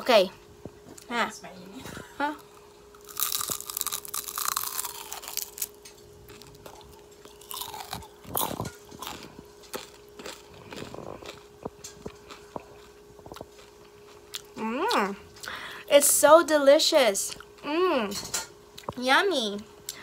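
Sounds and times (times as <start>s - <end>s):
chewing: 2.9s - 5.7s, 6.3s - 15.0s
spring roll crunching: 2.9s - 13.8s.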